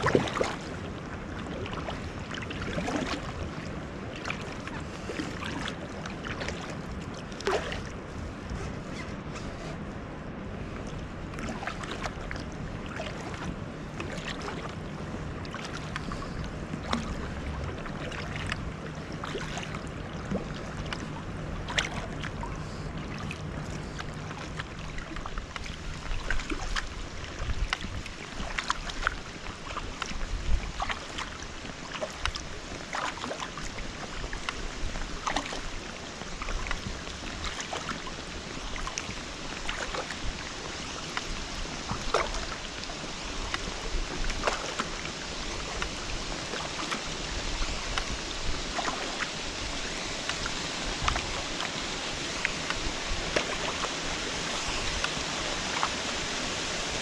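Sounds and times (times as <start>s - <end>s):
paddle strokes splashing: 0.0s - 57.0s
small waterfall hissing: 42.5s - 57.0s.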